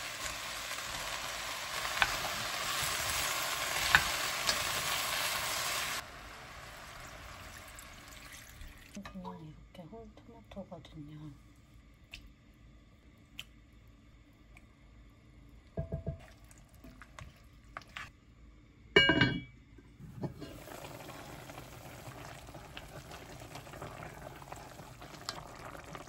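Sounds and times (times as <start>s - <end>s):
soup boiling and bubbling: 0.0s - 9.0s, 13.2s - 18.4s, 20.2s - 26.0s.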